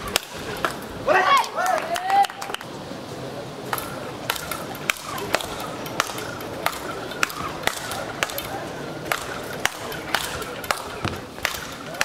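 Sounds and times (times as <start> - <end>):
rackets striking ball: 0.0 - 0.9, 3.7 - 12.0.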